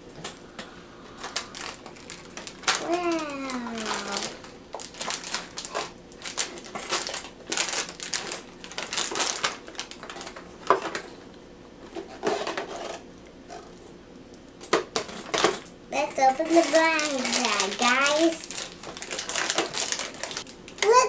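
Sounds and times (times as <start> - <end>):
plastic packaging crinkling: 1.1 - 11.3, 14.6 - 21.0.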